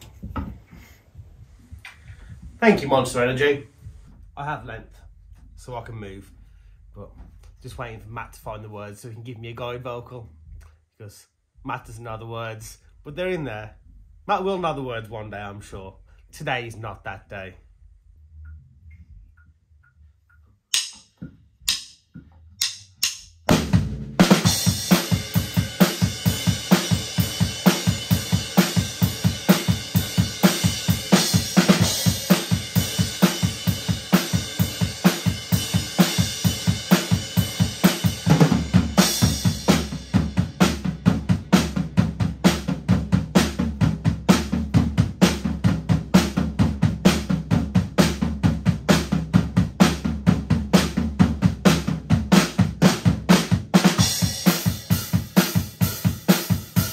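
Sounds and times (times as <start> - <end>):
drum kit beat: 20.7 - 56.9.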